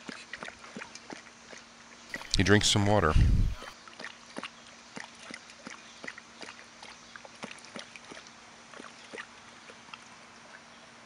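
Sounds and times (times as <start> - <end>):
dog lapping water from metal bowl: 0.0 - 2.3, 3.9 - 10.1.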